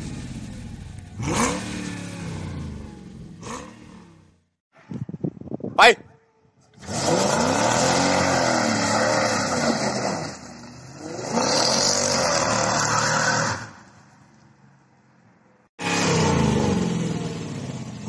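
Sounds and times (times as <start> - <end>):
car engine accelerating hard: 0.0 - 4.2, 15.8 - 18.0.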